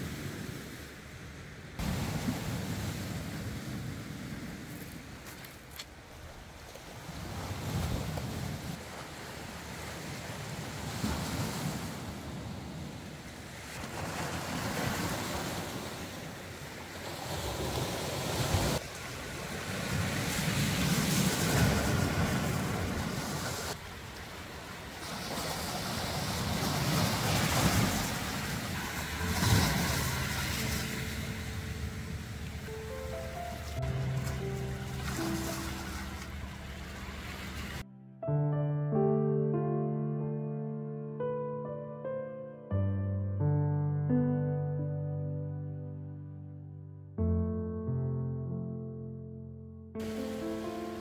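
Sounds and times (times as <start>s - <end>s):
sea waves breaking on beach: 0.0s - 37.8s, 50.0s - 51.0s.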